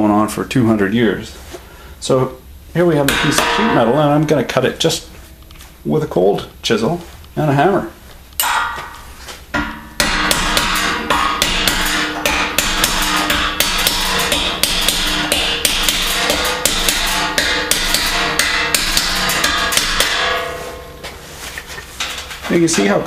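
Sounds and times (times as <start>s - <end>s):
metal ringing: 3.0s - 5.2s, 8.4s - 23.0s
hammer striking chisel: 3.1s - 4.5s, 8.4s - 9.0s, 9.6s - 20.9s.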